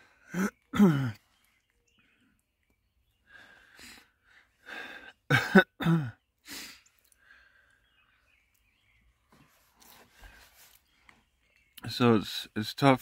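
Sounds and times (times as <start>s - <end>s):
man sobbing: 0.3s - 1.3s, 4.6s - 6.8s
man sniffing: 6.5s - 6.9s.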